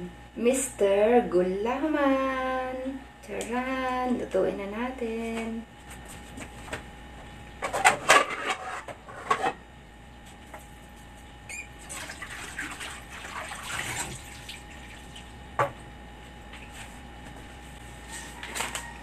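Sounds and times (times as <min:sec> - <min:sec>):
water running: 0:11.5 - 0:15.8.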